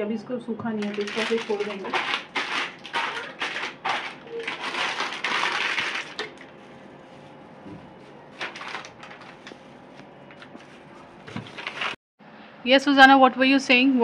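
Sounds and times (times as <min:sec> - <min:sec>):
containers clicking and knocking: 0:00.7 - 0:06.6
packets rustling: 0:00.8 - 0:06.6, 0:08.0 - 0:12.0.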